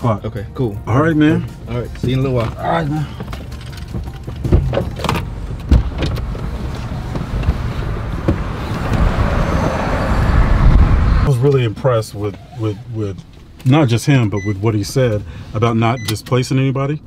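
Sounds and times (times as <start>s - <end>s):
traffic: 0.0s - 17.0s
clicks and knocks inside car: 2.0s - 9.1s
car door opening: 2.0s - 11.0s
heavy low rumble: 3.5s - 11.3s
rushing outside air: 6.4s - 11.3s.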